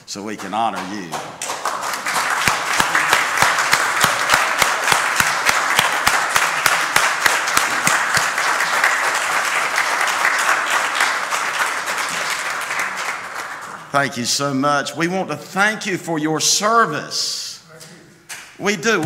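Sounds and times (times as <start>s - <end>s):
crowd applauding: 0.0s - 14.0s
loud steady claps nearby: 0.0s - 14.0s, 18.2s - 19.0s.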